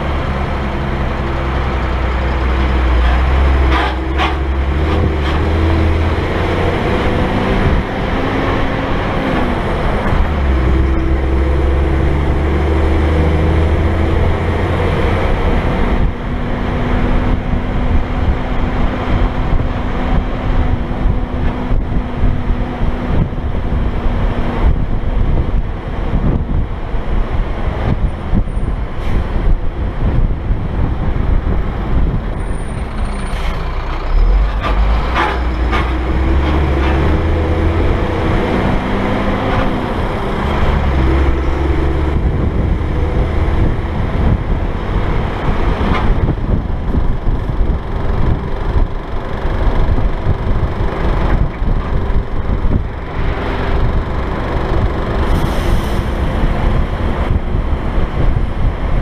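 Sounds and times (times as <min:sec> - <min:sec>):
road and wind noise: 0:00.0 - 0:59.0
truck engine running: 0:00.0 - 0:59.0.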